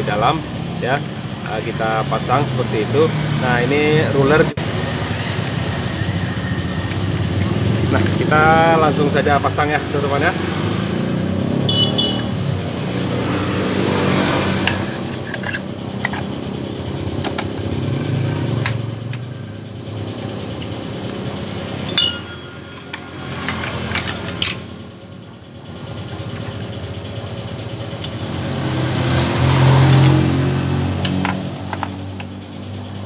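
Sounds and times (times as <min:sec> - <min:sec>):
motorcycle engine running: 0:04.6 - 0:33.0
metal clinks: 0:21.7 - 0:24.8.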